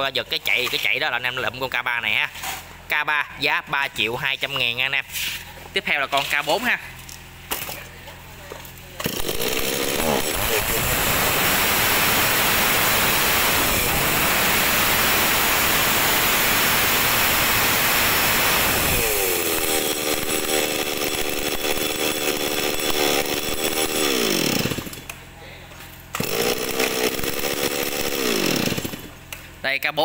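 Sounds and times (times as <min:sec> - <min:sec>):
chainsaw running: 0:05.8 - 0:25.3, 0:25.9 - 0:29.5.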